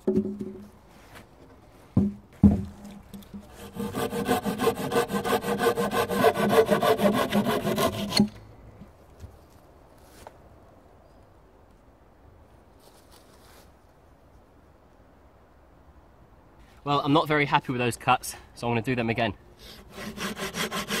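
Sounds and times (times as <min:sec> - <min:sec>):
knocks: 0:02.0 - 0:02.8
saw cutting through wood: 0:03.5 - 0:08.3, 0:19.6 - 0:21.0.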